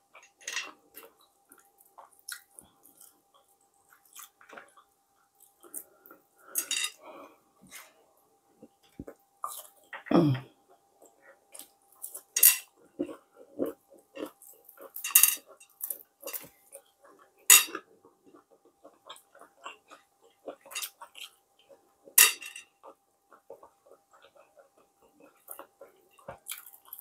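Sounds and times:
person humming: 0:10.1 - 0:10.5.

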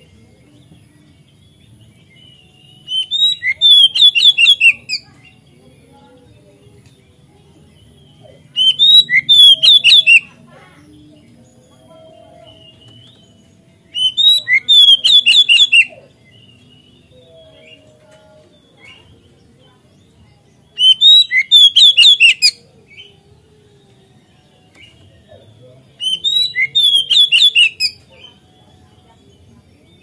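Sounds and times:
bird whistling song: 0:02.0 - 0:05.4, 0:07.9 - 0:10.4, 0:12.4 - 0:17.9, 0:20.6 - 0:23.2, 0:26.0 - 0:28.4.

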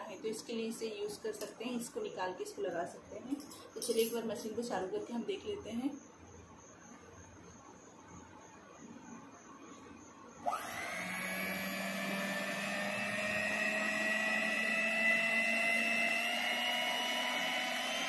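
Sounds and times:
hand mixer motor whine: 0:10.4 - 0:18.0.

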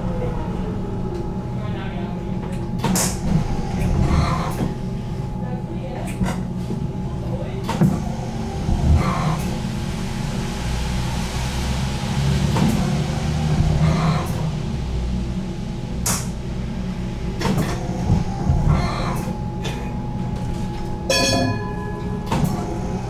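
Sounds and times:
low tram equipment rumble: 0:00.0 - 0:23.0.

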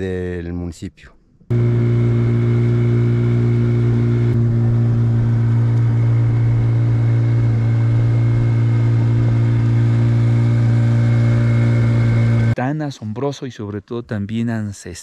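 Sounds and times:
boat motor running: 0:01.5 - 0:12.6.

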